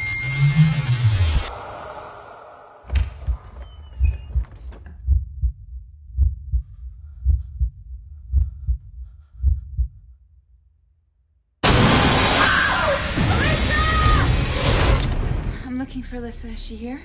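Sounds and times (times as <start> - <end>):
heartbeat double thumps: 2.9 - 10.2.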